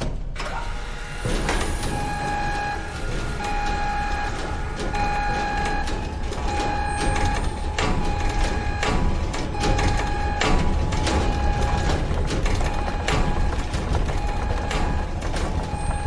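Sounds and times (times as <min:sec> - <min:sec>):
knocks: 0:01.2 - 0:16.0
electronic warning alarm beeping: 0:01.5 - 0:16.0.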